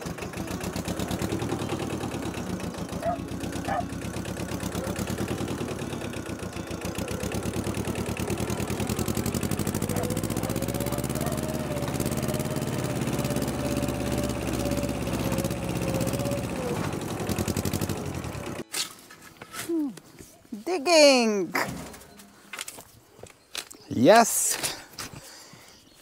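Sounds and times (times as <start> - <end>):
thin engine whine: 0.0 - 18.6
tractor engine chugging: 0.0 - 18.6.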